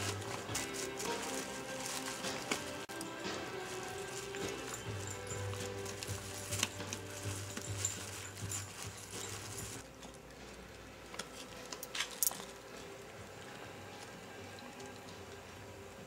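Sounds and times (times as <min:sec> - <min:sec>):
collar tags jingling: 0:00.0 - 0:10.1
plastic bag crackling: 0:00.0 - 0:10.3.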